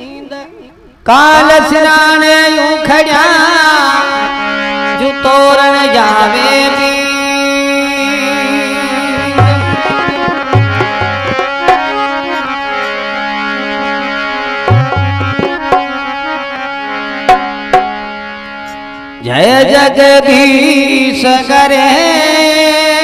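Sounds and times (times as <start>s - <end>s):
held melody notes: 7.5s - 19.4s
sharp percussion clicks: 9.2s - 12.0s, 14.7s - 16.0s, 17.3s - 18.0s
deep hand-drum strokes: 14.7s - 15.8s.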